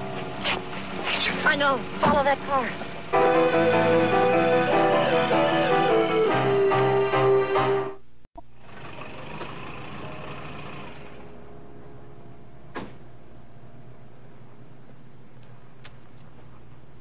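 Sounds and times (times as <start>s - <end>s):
car engine idling: 0.0s - 6.6s, 8.4s - 16.6s
music cue: 3.1s - 8.0s
car door shutting: 12.7s - 13.1s.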